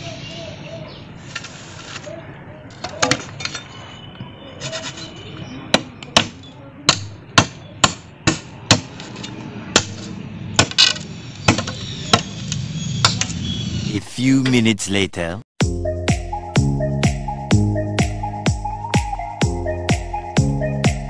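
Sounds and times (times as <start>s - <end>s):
blade chopping bamboo: 5.7s - 12.3s.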